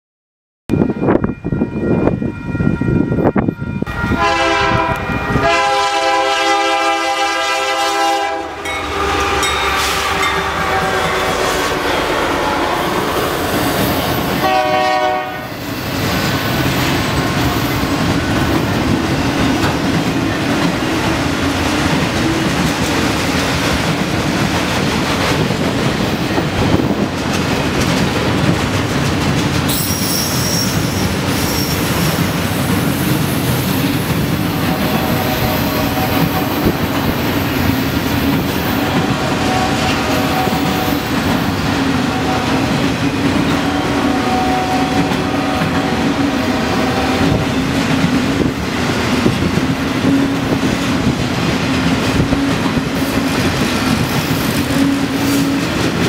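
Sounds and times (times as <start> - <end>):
locomotive air horn: 3.8 - 15.6, 29.7 - 32.2, 34.5 - 36.8, 38.5 - 41.2, 41.9 - 42.8, 43.5 - 47.5
train wheels clattering: 15.7 - 44.0.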